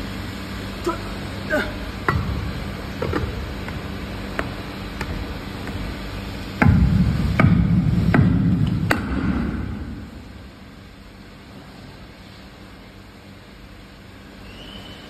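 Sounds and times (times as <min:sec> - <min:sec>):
grinding rumble: 0:00.0 - 0:10.8
low workshop hum: 0:00.0 - 0:15.0.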